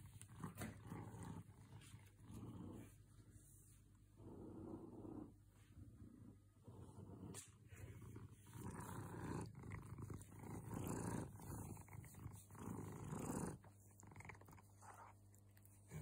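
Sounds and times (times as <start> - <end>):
cat purring: 0.0 - 16.0.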